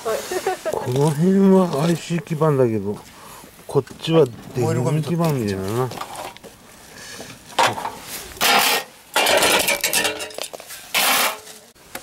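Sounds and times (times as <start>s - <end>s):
metal scraping and clinking: 7.6s - 11.7s.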